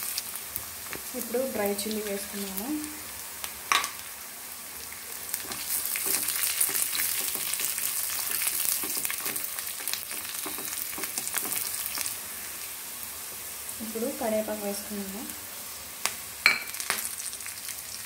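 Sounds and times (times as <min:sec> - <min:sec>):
onions sizzling in hot oil: 0:00.0 - 0:18.0
spatula scraping a pan: 0:05.3 - 0:12.2.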